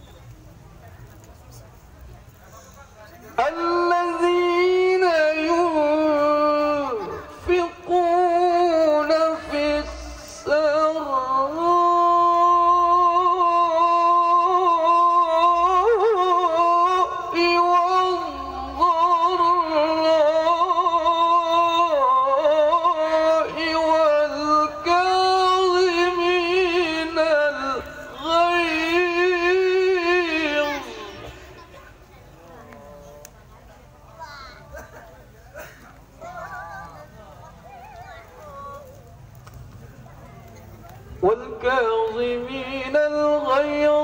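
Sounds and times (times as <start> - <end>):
man chanting through microphone: 2.9 - 31.8, 41.2 - 44.0.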